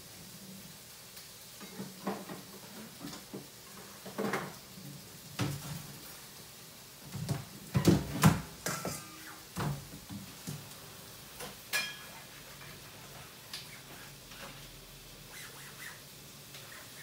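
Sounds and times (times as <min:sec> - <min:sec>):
dishes and utensils knocking: 0:07.7 - 0:09.8, 0:11.4 - 0:12.2.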